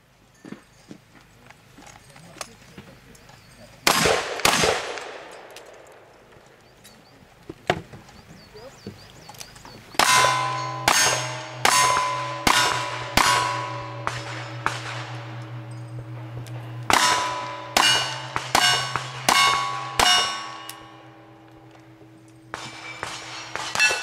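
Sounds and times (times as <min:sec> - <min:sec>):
gunshots: 0:03.8 - 0:06.1, 0:10.0 - 0:21.8, 0:22.4 - 0:24.0
steel plate clanging: 0:10.0 - 0:24.0.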